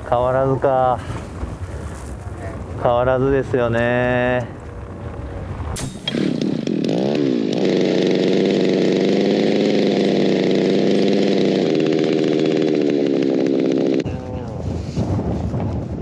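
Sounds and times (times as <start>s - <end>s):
small gasoline engine running: 6.0s - 14.1s.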